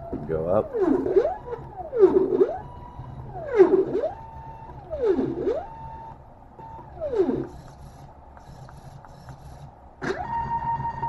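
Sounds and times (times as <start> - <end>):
stepper motors whining: 0.0 - 11.0.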